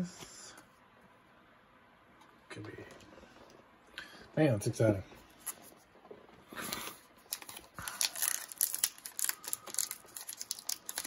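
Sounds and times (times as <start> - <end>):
wrapper tearing and crinkling: 6.6 - 11.0.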